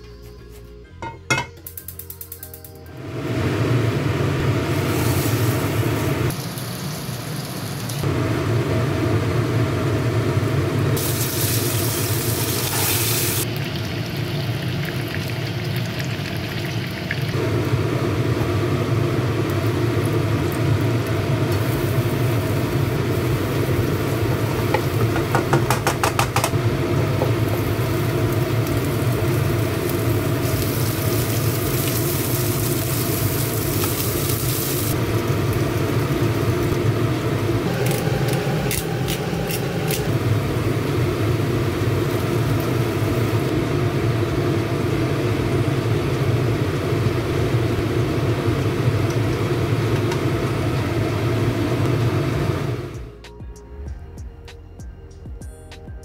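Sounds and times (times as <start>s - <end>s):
food sizzling in oil: 3.0s - 9.5s, 10.2s - 52.9s.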